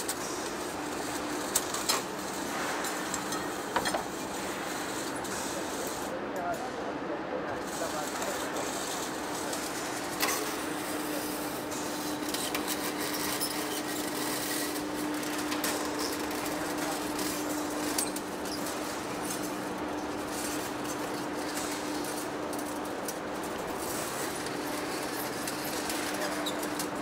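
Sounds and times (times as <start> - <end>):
steady machine hum: 0.0 - 27.0.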